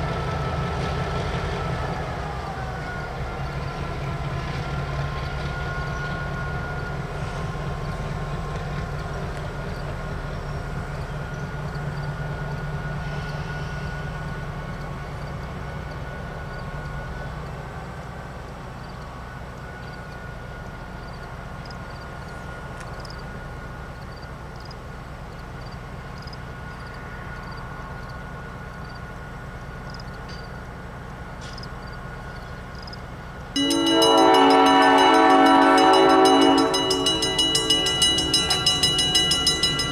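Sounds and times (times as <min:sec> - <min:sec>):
diesel locomotive rumbling: 0:00.0 - 0:39.9
train horn blast: 0:33.6 - 0:39.9.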